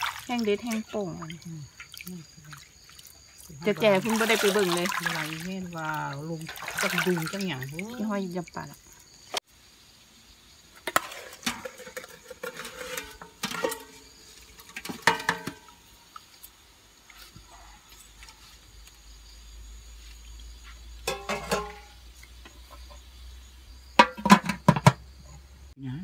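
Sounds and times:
metal pot and lid clanking: 10.8 - 15.8, 21.0 - 22.0, 24.0 - 25.0.

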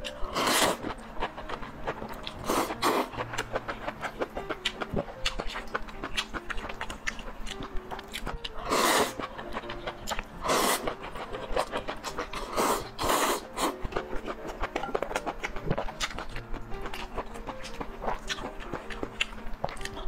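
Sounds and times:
wet chewing: 0.0 - 20.0
noodle slurping: 0.2 - 1.0, 2.3 - 3.9, 8.6 - 13.9.

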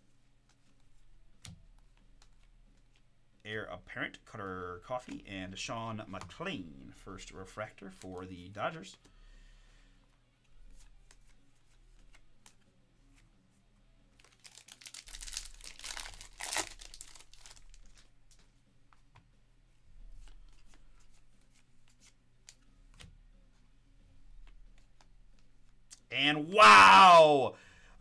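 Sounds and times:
foil wrapper tearing and crinkling: 14.2 - 18.1.

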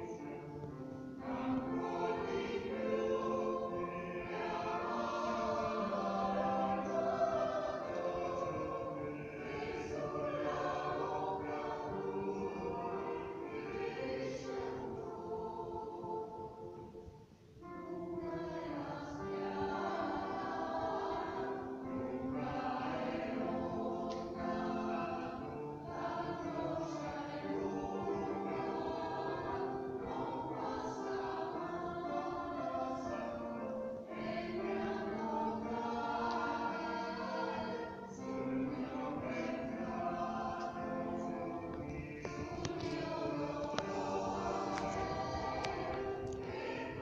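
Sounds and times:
choir singing: 0.0 - 47.0.

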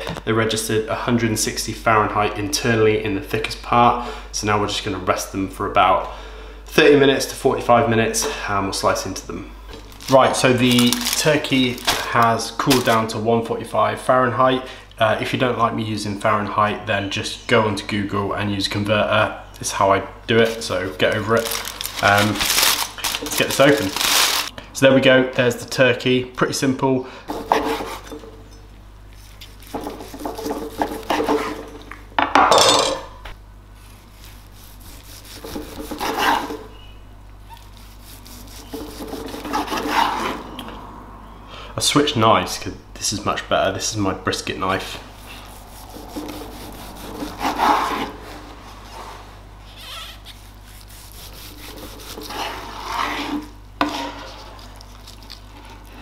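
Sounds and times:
knife sawing on cutting board: 27.3 - 28.1, 29.6 - 31.6, 34.1 - 36.6, 37.7 - 40.4, 45.2 - 48.2, 50.1 - 54.5
knife slicing meat on board: 29.3 - 31.6, 34.2 - 36.6.

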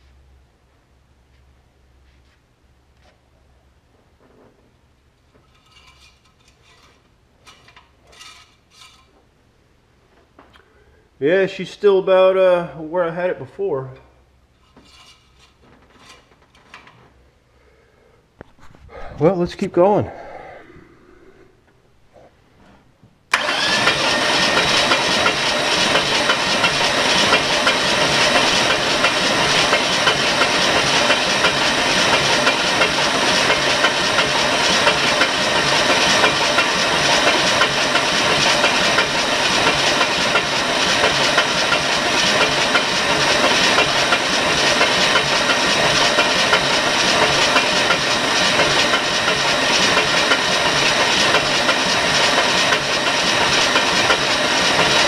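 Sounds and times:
truck engine cranking on starter: 23.3 - 55.0.

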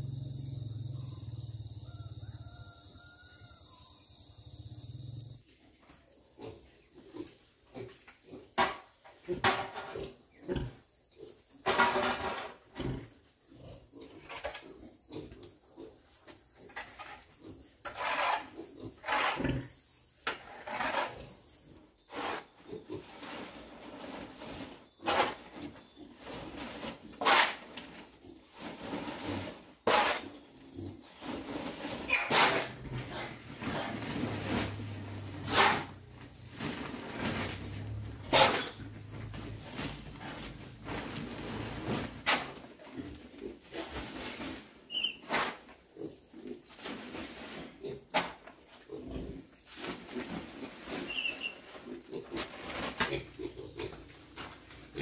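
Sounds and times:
pigs grunting: 9.3 - 11.4, 12.4 - 19.8, 29.4 - 35.9, 45.5 - 55.0.

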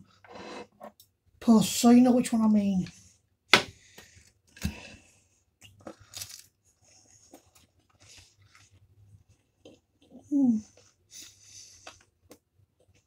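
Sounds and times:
chewing with faint crunching: 5.6 - 13.0.

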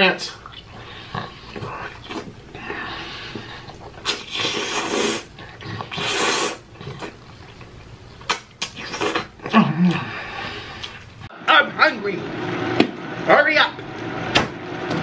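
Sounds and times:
person breathing noisily while eating: 0.7 - 6.6, 9.7 - 11.1.

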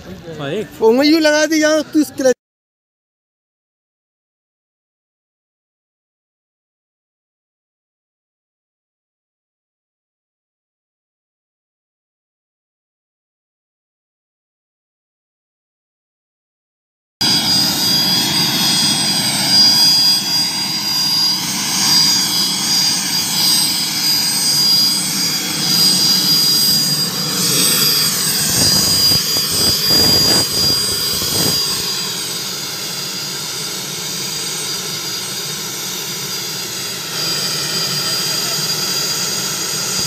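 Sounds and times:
helicopter turbine whine: 0.1 - 2.4, 17.2 - 40.0.

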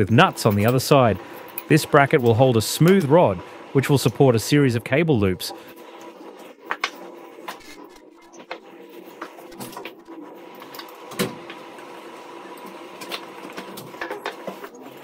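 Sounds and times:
metal screws and nuts clinking: 0.3 - 2.4.

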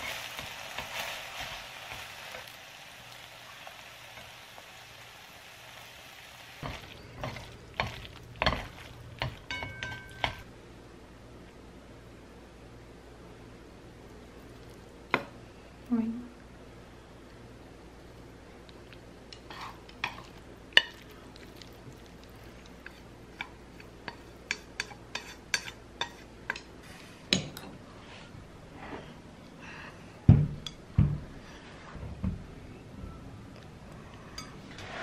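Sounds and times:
low steady hum: 0.0 - 35.0
chopsticks tapping ceramic bowl: 6.6 - 10.5.

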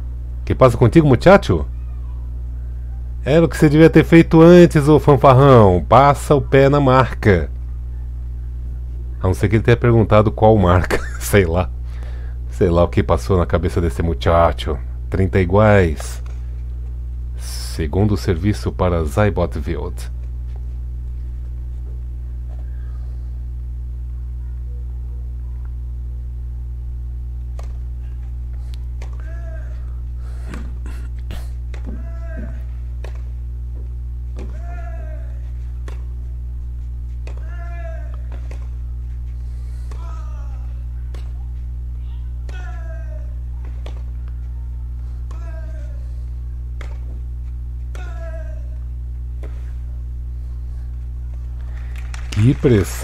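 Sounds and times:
steady low hum: 0.0 - 53.0
player grunting: 30.8 - 32.6, 39.9 - 40.8
racquet hitting tennis ball: 31.7 - 33.4, 34.3 - 36.2, 37.1 - 38.8, 39.8 - 40.2, 43.6 - 44.3, 46.7 - 47.2, 47.8 - 48.3
tennis ball strikes: 43.6 - 44.2, 46.7 - 47.1.

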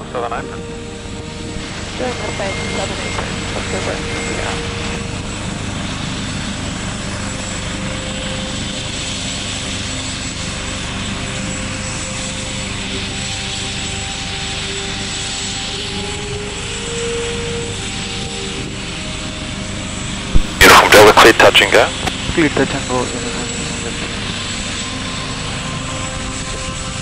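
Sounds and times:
helicopter rotor and engine: 0.0 - 27.0
high turbine whine: 0.0 - 27.0.

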